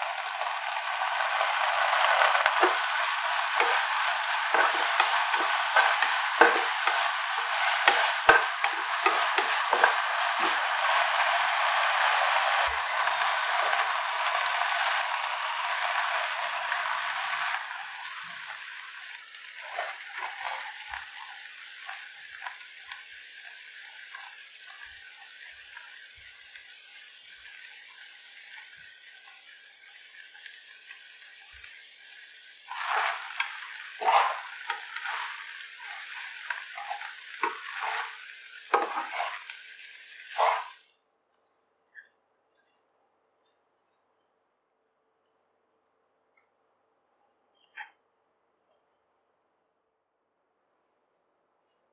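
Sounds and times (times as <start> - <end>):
vegetables sizzling in a frying pan: 0.0 - 40.8.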